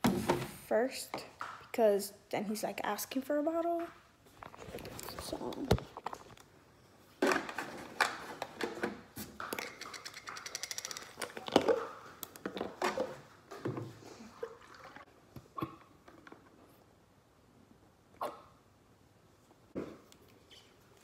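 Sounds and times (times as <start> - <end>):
plastic jug and bottle clattering: 7.2 - 15.0.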